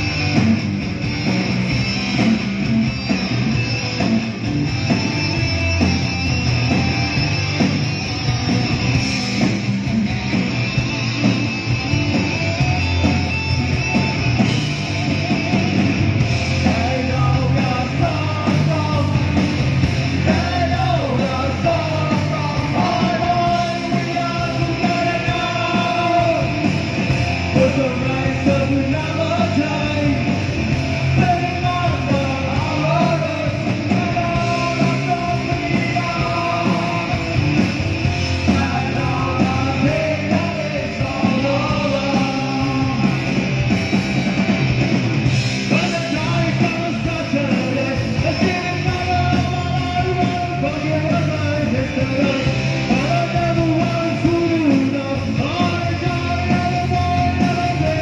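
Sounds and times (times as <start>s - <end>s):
drums: 0.0s - 58.0s
electric guitar: 0.0s - 58.0s
person singing: 16.6s - 19.5s, 20.1s - 26.7s, 31.0s - 37.4s, 38.4s - 43.4s, 45.6s - 58.0s.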